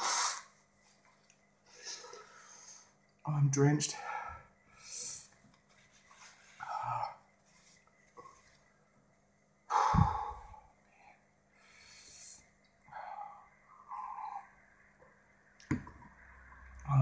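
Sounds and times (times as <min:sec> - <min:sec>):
man breathing heavily: 0:03.9 - 0:05.4, 0:06.2 - 0:07.7, 0:09.7 - 0:14.6.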